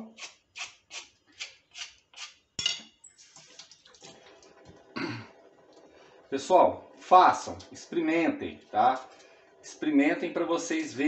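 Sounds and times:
peeler scraping potato skin: 0.0 - 2.4.

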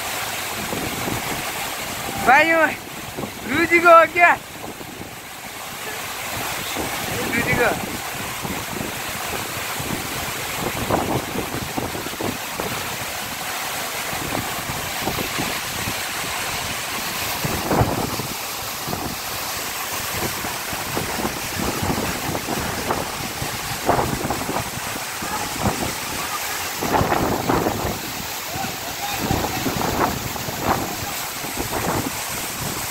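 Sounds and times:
waterfall roar: 0.0 - 32.9
wind buffeting microphone: 14.2 - 19.4, 20.0 - 32.9.

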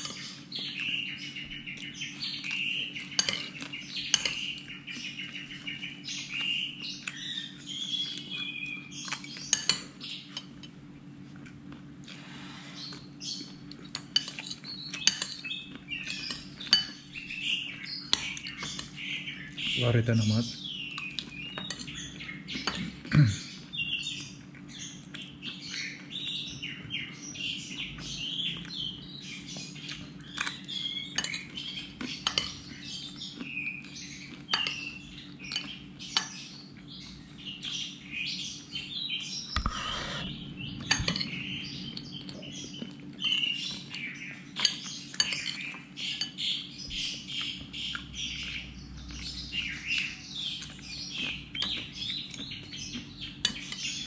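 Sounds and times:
faint steady hum: 0.0 - 53.8
small birds chirping: 0.0 - 54.0
cutlery clinking on dishes: 3.0 - 4.6, 9.0 - 10.8, 13.8 - 15.5, 31.1 - 32.6, 40.8 - 41.4, 44.6 - 46.4.

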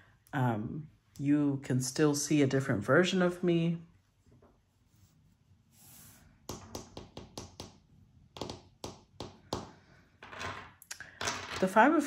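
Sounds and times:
nails and cards tapping on wood: 6.5 - 10.4.

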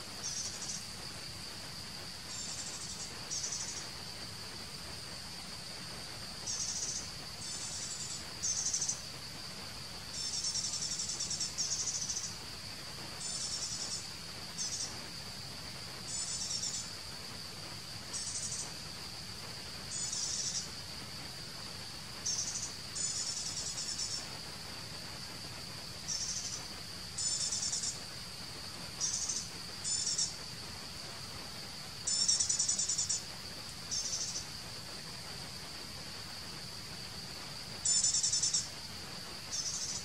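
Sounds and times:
insects high-pitched drone: 0.0 - 40.0
insects rapid pulsing trills: 0.0 - 40.0.

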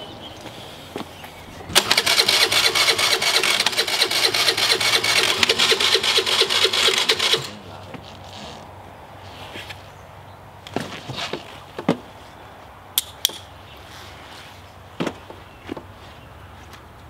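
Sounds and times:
scooter engine starting: 1.7 - 7.6.

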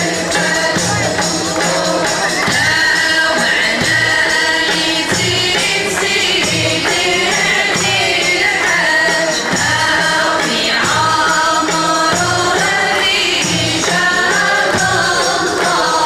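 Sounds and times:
women's chorus chanting in unison: 0.0 - 16.0.

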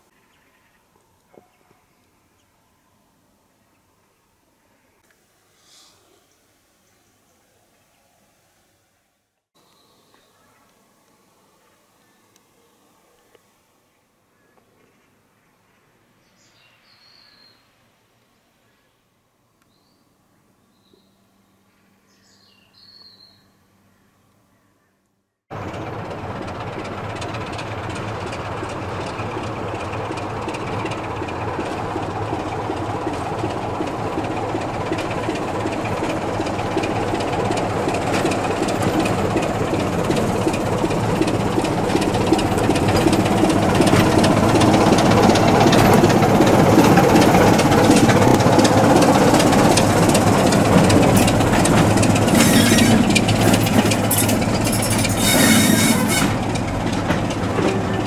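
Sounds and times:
diesel locomotive engine: 25.5 - 58.0
train wheels clattering on rails: 25.6 - 58.0.

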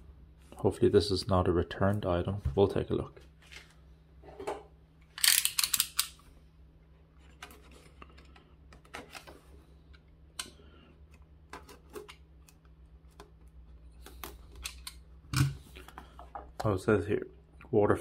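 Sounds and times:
utility knife ratchet clicks: 5.2 - 6.2.

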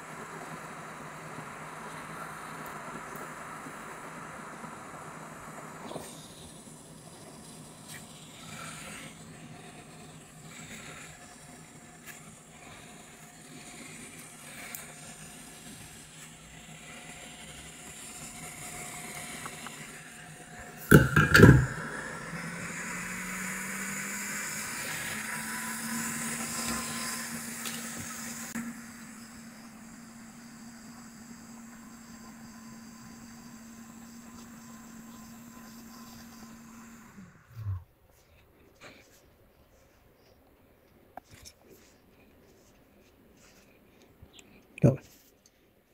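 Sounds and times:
hot-air fan blowing hiss: 0.0 - 40.0
loud clatter: 20.8 - 22.0.

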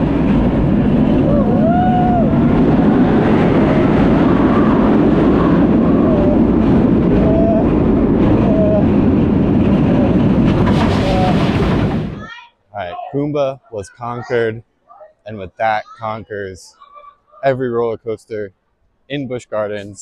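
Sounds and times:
wind rushing on microphone: 0.0 - 12.2
roller coaster train rumbling on track: 0.0 - 12.9.

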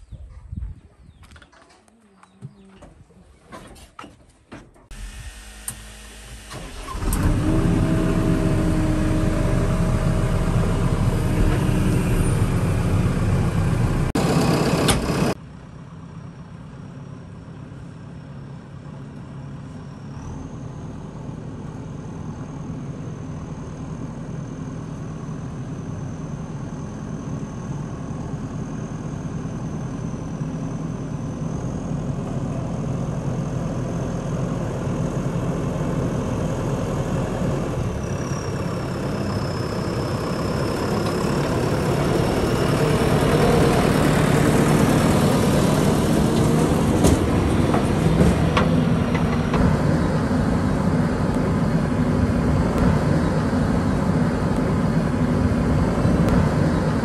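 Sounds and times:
diesel engine running: 4.9 - 57.0.

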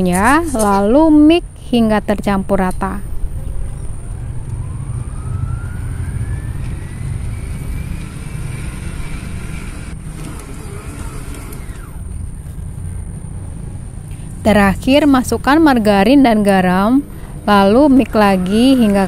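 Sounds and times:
motor whine: 3.5 - 14.4
stand mixer motor humming: 7.0 - 12.1.

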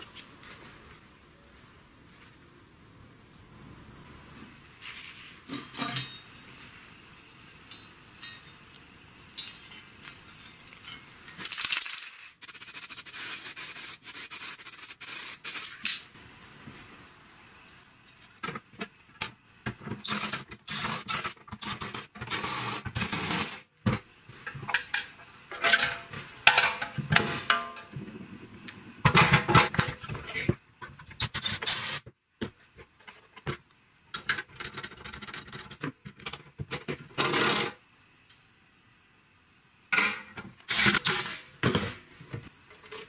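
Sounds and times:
sheet metal parts clinking: 5.5 - 6.3, 24.7 - 27.9.

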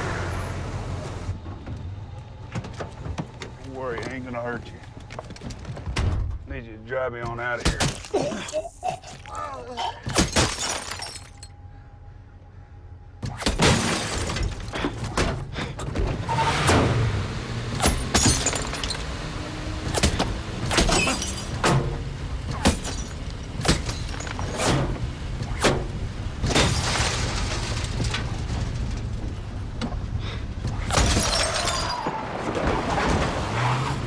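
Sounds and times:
glass shattering: 10.0 - 11.5, 13.4 - 14.8, 17.8 - 19.0, 20.7 - 21.8, 22.6 - 24.6, 26.4 - 28.4, 30.9 - 32.2.

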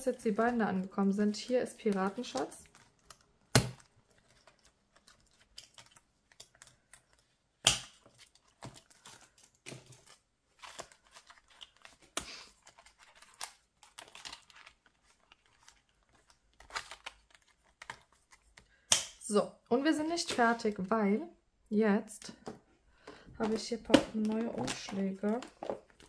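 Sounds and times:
plastic sleeves crinkling: 0.0 - 18.8, 23.4 - 26.0.

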